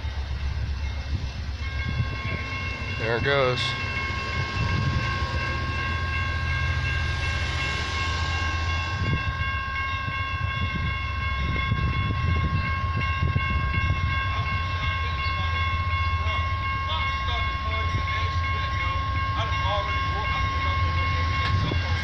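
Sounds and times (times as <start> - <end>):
railroad crossing bell ringing: 0.0 - 22.0
low rumble: 3.7 - 14.2.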